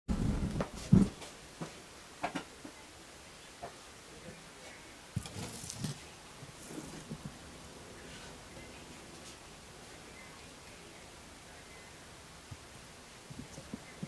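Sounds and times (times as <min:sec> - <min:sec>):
tableware clatter: 0:05.2 - 0:06.0.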